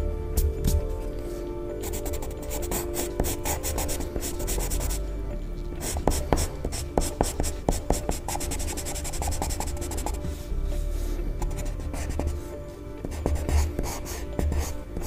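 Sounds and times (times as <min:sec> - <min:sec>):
pencil scratching on paper: 0:01.8 - 0:05.0, 0:05.8 - 0:10.4, 0:11.4 - 0:12.4, 0:13.0 - 0:15.0.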